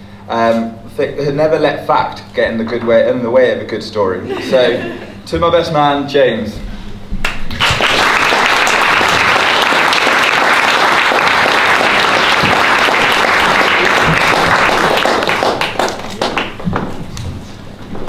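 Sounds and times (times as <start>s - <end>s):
audience applauding: 7.2s - 16.7s.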